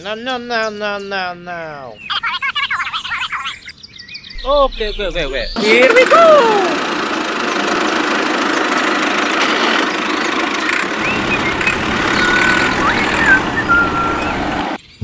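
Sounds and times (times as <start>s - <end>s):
bird chirps: 1.9s - 5.7s, 10.2s - 15.0s
low hum: 4.4s - 14.8s
toy tractor engine running: 5.6s - 14.8s.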